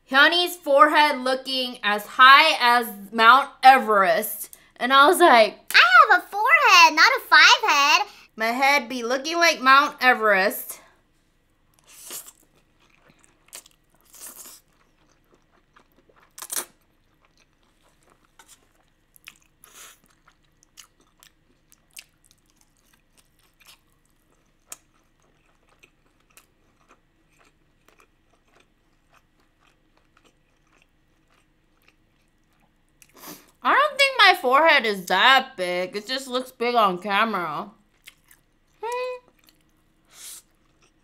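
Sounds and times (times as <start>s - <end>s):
wet chewing with mouth clicks: 11.7s - 33.6s, 37.8s - 41.0s
noodle slurping: 11.8s - 12.4s.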